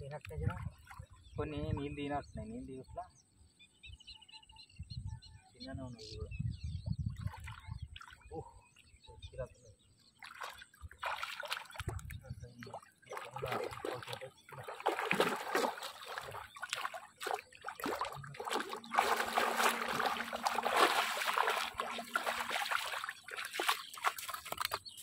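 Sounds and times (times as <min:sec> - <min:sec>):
fish splashing in shallow water: 0:10.2 - 0:25.0.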